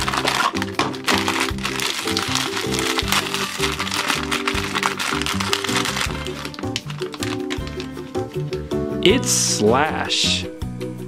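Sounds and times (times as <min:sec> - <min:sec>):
foil wrapper crinkling: 0:00.0 - 0:08.0
background music: 0:00.0 - 0:11.0.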